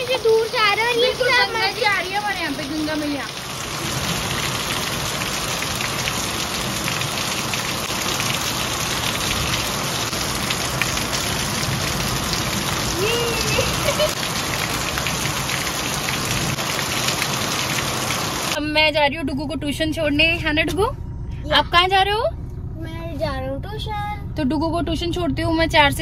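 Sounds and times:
heavy rain on garden: 0.0 - 18.6.

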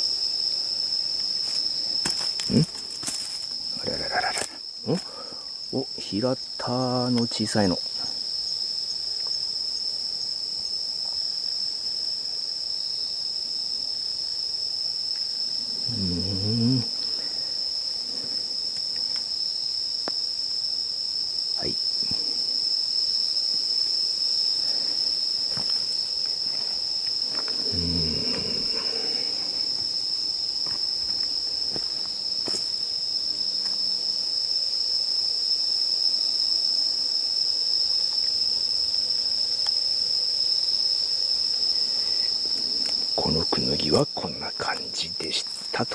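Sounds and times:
insects chorus: 0.0 - 45.9.

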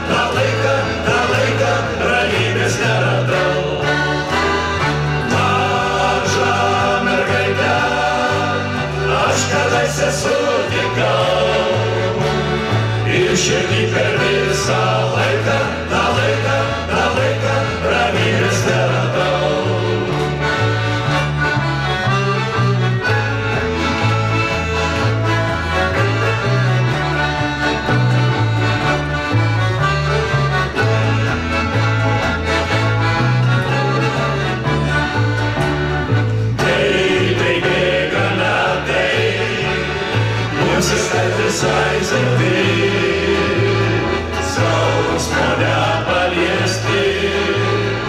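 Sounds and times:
men's vocal ensemble singing: 0.0 - 20.7, 36.6 - 48.0
accordion: 0.0 - 48.0
two-note alternating bass: 0.0 - 48.0
violin: 0.0 - 48.0.

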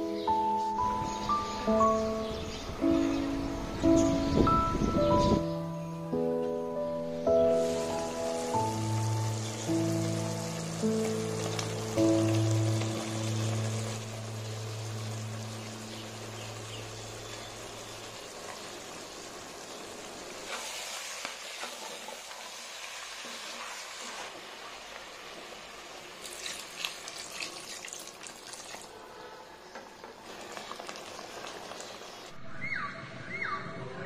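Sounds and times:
curry simmering and sizzling: 7.4 - 28.9, 30.0 - 32.4.

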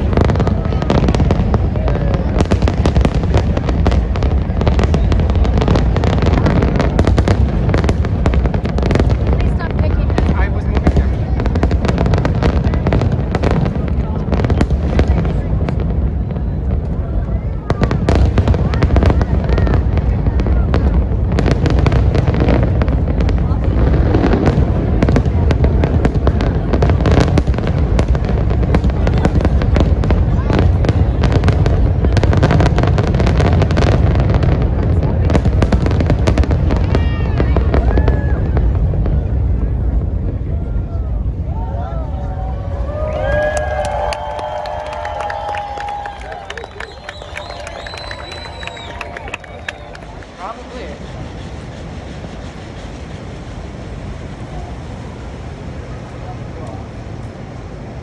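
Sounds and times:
firework crackling pops: 0.0 - 41.7, 42.4 - 57.6
low rumble of bursting shells: 0.0 - 41.7, 42.4 - 58.0
firework shells bursting: 45.0 - 54.8.

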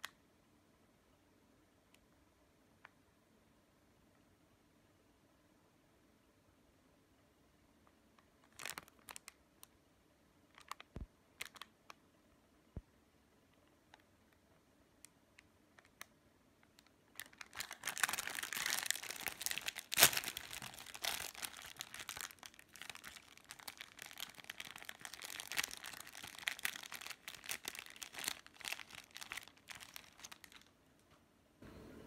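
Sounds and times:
plastic bread wrapper crinkling: 8.2 - 9.7, 10.5 - 11.9, 15.8 - 30.8.

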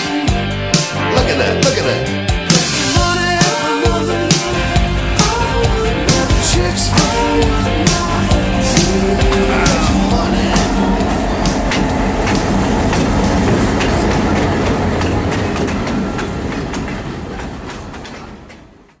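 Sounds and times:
diesel locomotive engine: 0.3 - 19.0
train wheels clattering on rails: 5.2 - 19.0.

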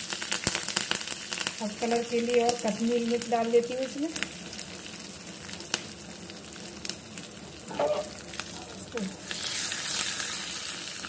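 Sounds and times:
spices sizzling in oil: 0.0 - 11.0
ladle stirring pan: 7.7 - 8.8.

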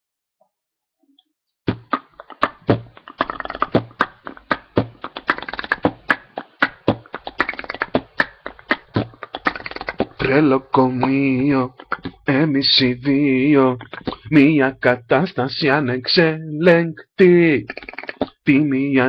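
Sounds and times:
percussive pop beat: 1.7 - 12.4, 17.6 - 18.6.

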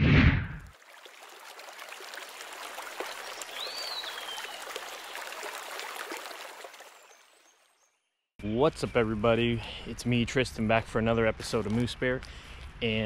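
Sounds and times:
running stream water: 0.6 - 7.9.

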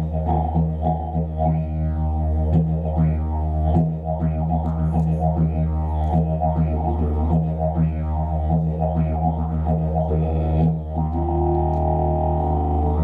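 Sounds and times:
didgeridoo drone: 0.0 - 13.0.

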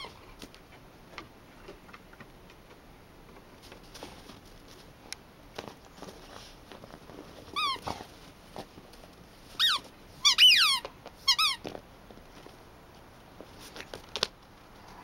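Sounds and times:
dog chewing toy: 6.0 - 12.6
squeaky dog toy squeaking: 7.6 - 7.9, 9.6 - 11.7.

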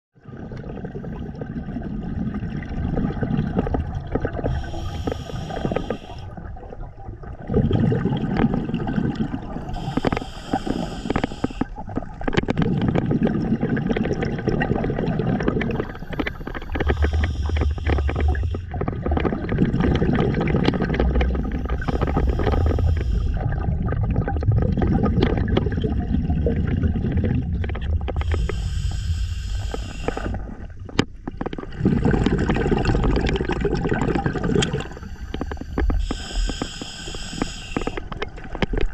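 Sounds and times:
gurgling exhaled bubbles: 0.2 - 38.9
regulator inhale hiss: 4.4 - 6.4, 9.6 - 11.8, 15.7 - 18.7, 21.3 - 23.4, 28.2 - 30.5, 34.8 - 38.2.

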